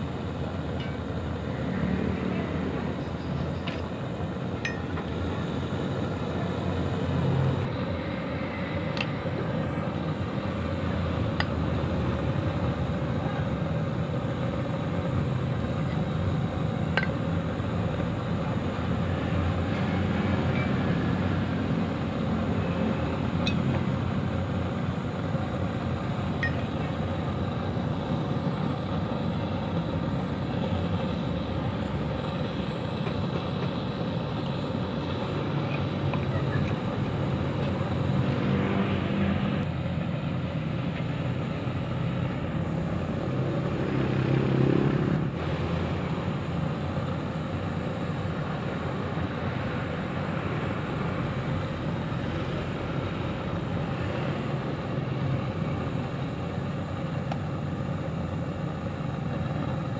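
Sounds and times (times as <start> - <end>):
low mechanical rumble: 0.0 - 59.9.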